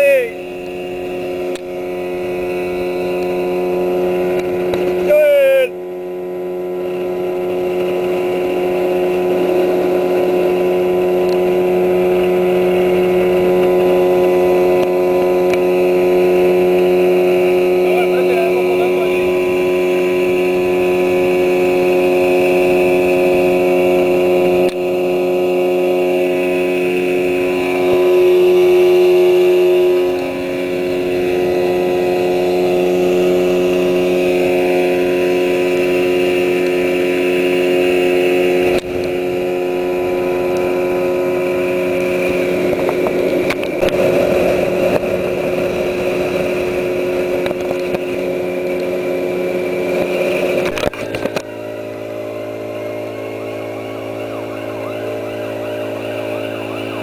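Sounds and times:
outboard motor running: 0.0s - 57.0s.

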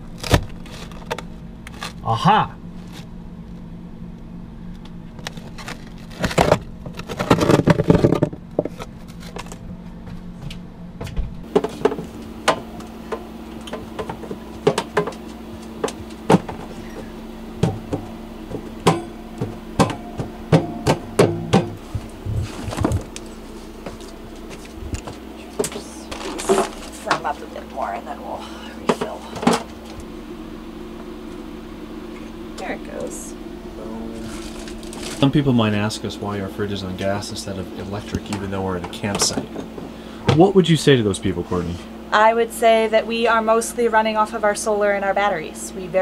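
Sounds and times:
steady low hum: 0.0s - 46.0s
freezer handling knocks and clatters: 6.0s - 9.6s, 11.0s - 23.2s, 23.9s - 27.4s, 38.2s - 40.5s.

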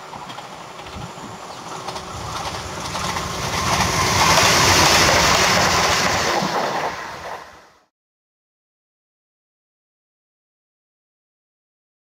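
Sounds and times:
train wheels rushing on rails: 0.0s - 7.9s.

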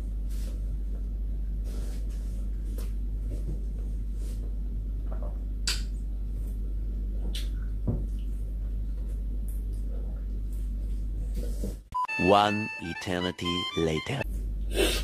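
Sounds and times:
steady low hum: 0.0s - 11.9s
mouth clicks and smacks while chewing: 7.3s - 8.3s.

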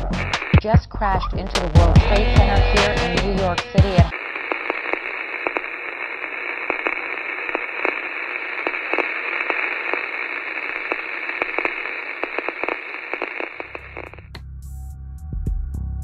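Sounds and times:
crackles and clicks: 0.0s - 0.7s, 4.1s - 14.5s
radio static hiss: 0.0s - 0.8s, 1.7s - 14.3s.

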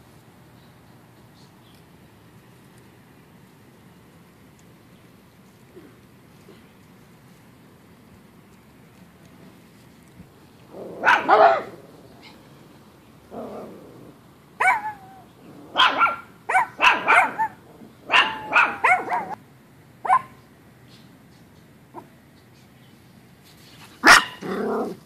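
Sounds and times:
small dog barking: 10.8s - 12.4s, 14.6s - 19.4s, 20.0s - 20.4s, 24.0s - 25.0s.

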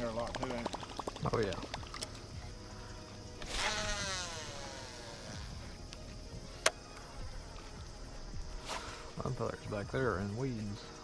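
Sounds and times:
night insects buzzing: 0.0s - 11.0s
fishing reel whirring: 3.2s - 5.9s.

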